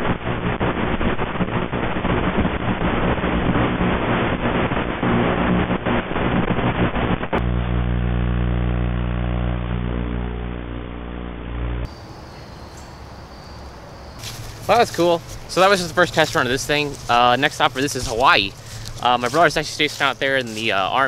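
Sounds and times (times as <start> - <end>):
motor buzzing hum: 3.4 - 11.9.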